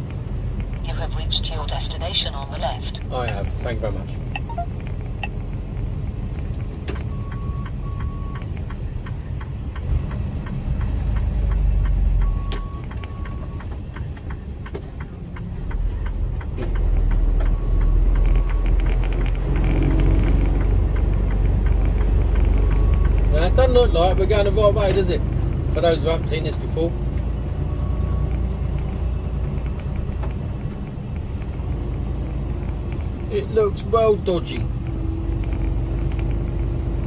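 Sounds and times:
short beeps: 4.4s - 4.7s.

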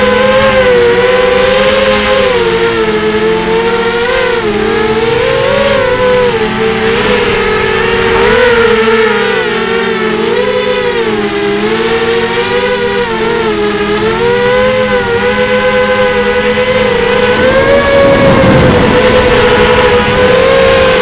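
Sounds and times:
drone propellers whining: 0.0s - 21.0s
rush of noise: 2.2s - 10.0s, 15.0s - 21.0s.

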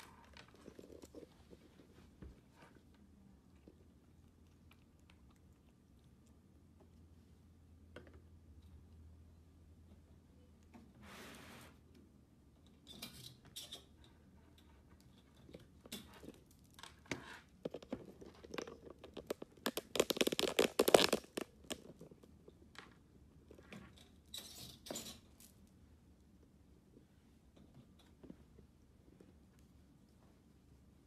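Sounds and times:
crackling scrapes: 16.1s - 22.2s.

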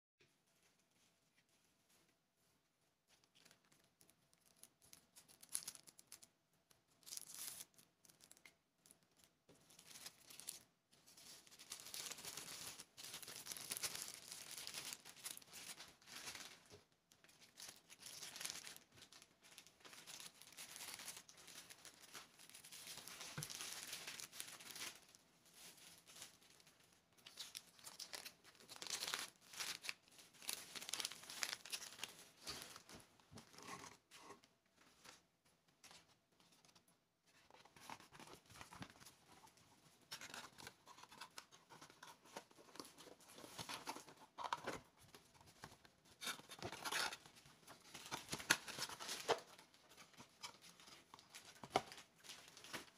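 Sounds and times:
plastic bags crinkling: 3.3s - 16.8s, 17.4s - 33.2s, 46.2s - 52.9s.

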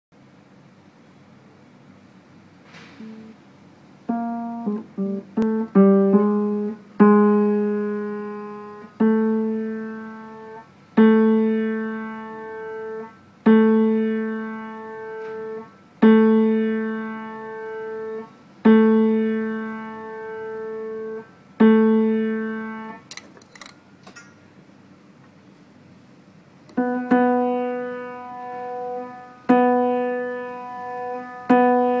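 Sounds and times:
muted piano notes: 3.0s - 3.4s, 4.1s - 23.0s, 26.7s - 32.0s.

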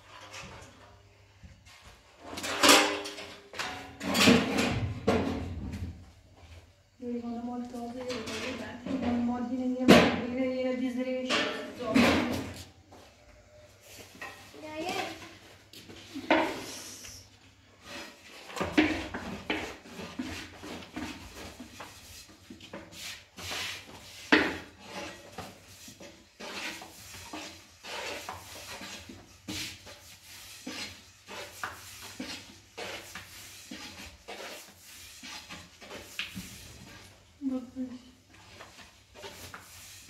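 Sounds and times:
rolling pin rolling over dough: 17.8s - 40.0s.

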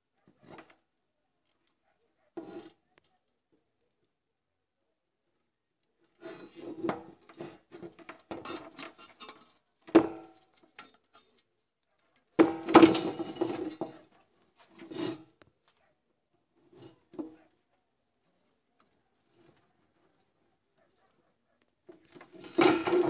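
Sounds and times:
parts rattling against steel case: 22.0s - 23.0s.

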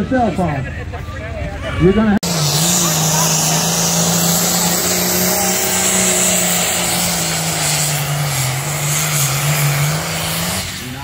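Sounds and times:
diesel tractor engine under load: 2.2s - 11.0s.

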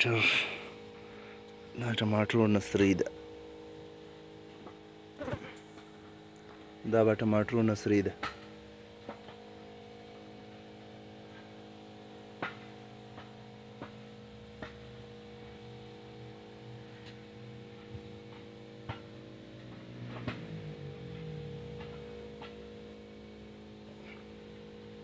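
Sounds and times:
steady hum: 0.0s - 25.0s
faint wavering low sound: 13.0s - 25.0s.

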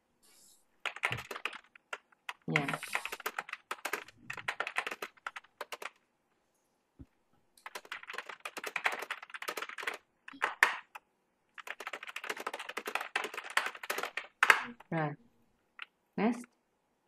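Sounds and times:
fast typing on a keyboard: 0.8s - 6.0s, 7.6s - 11.0s, 11.6s - 14.9s.

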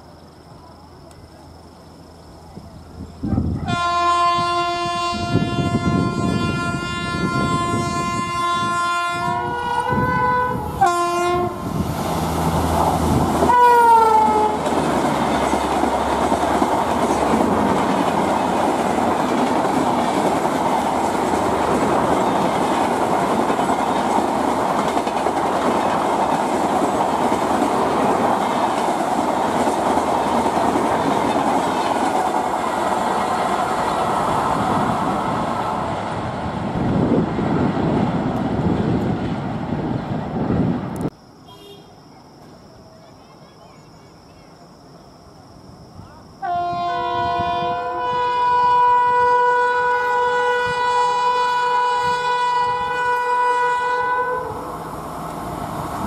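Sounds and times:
locomotive horn: 3.3s - 11.7s, 13.5s - 14.6s, 46.4s - 54.7s
train wheels clattering on rails: 12.8s - 35.6s.

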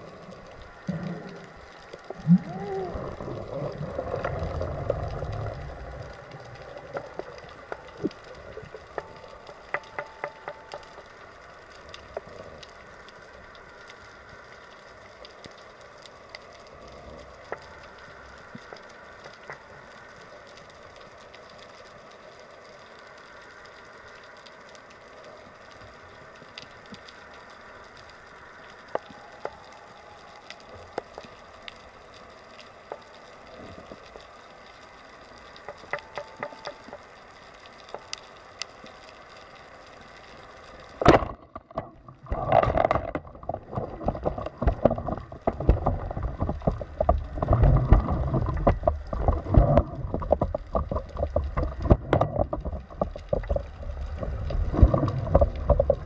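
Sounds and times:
faint clicks: 0.0s - 56.0s
underwater ambience: 0.0s - 56.0s
churning water: 35.5s - 37.0s, 41.0s - 56.0s.

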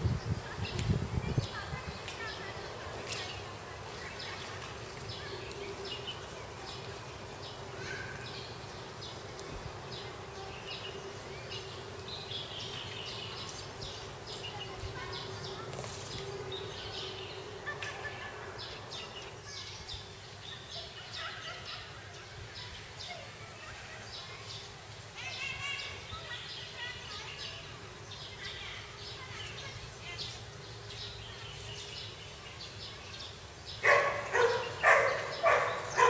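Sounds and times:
small birds chirping: 0.0s - 36.0s.

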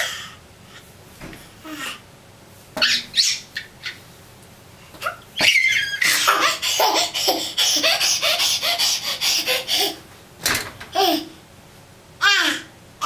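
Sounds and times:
baby laughing: 5.0s - 10.1s, 10.9s - 11.4s, 12.2s - 12.7s.

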